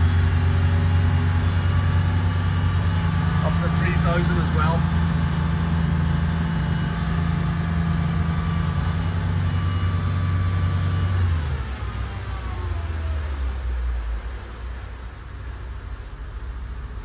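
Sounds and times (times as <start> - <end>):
diesel boat engine running: 0.0 - 17.0.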